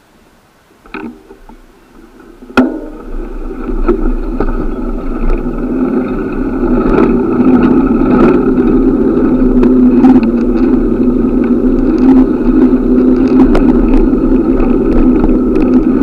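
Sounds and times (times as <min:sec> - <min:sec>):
bicycle tyre and wind rumble: 0:00.0 - 0:16.0
steady low hum: 0:00.0 - 0:16.0
sharp knock: 0:02.6 - 0:03.0.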